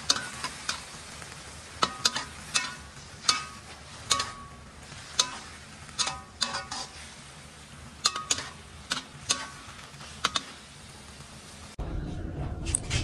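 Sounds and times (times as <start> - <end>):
metal spatula scraping a wok: 0.0 - 10.8
sizzle of frying: 0.0 - 11.8.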